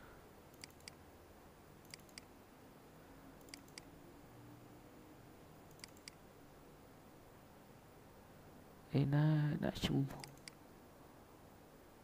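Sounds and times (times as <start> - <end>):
computer mouse double-clicks: 0.5 - 1.0, 1.8 - 2.3, 3.4 - 3.9, 5.7 - 6.2, 10.2 - 10.6.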